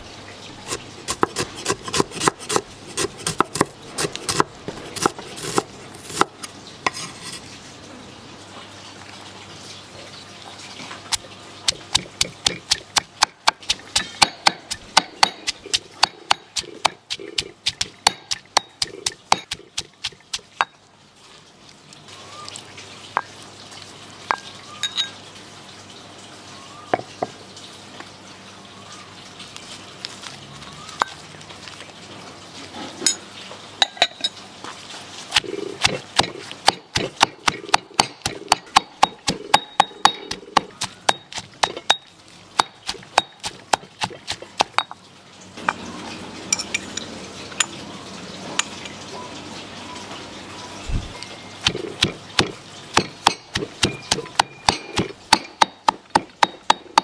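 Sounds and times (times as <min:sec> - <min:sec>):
cooking utensils clinking and knocking: 0:46.5 - 0:47.8.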